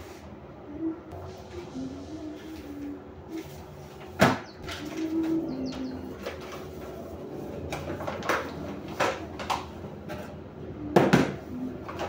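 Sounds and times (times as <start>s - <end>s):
kitchen items knocking and clunking: 7.6s - 10.4s, 11.0s - 12.0s.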